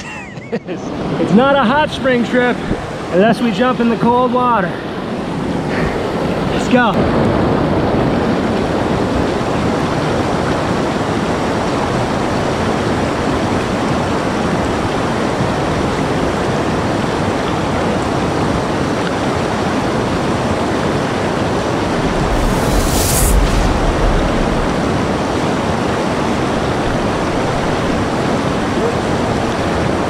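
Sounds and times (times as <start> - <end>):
fast-flowing river rushing: 23.4 - 30.0.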